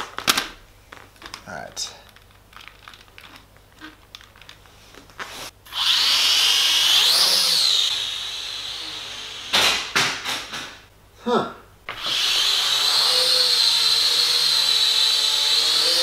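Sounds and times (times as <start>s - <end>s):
quadcopter motors whining: 5.7s - 9.6s, 12.0s - 16.0s.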